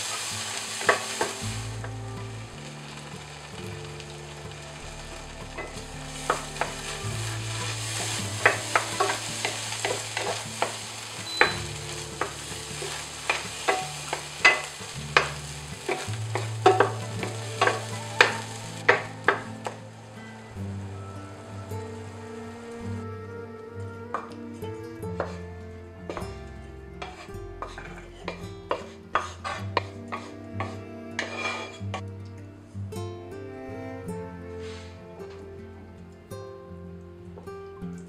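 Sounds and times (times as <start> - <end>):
paste sizzling in frying pan: 0.0 - 22.8, 27.0 - 32.0
spatula scraping against pan: 5.6 - 19.8, 27.0 - 32.0.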